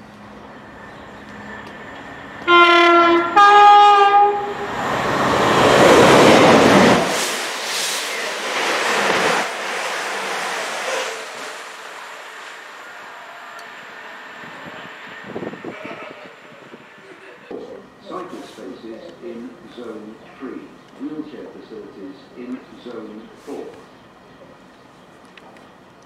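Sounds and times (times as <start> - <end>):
train rushing past: 0.0 - 24.7
two-tone train horn: 2.4 - 4.8.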